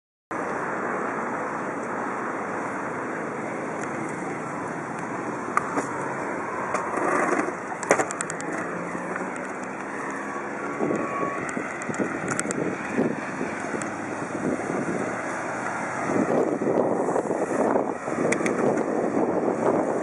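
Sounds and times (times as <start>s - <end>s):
faint street traffic: 0.3s - 20.0s
wind noise on microphone: 6.8s - 20.0s
sharp clicks: 7.8s - 10.2s, 10.9s - 12.6s.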